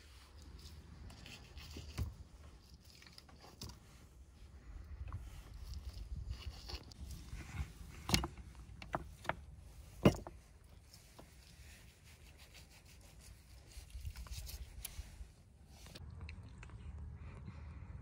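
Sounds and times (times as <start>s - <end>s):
low steady rumble: 13.3s - 18.0s.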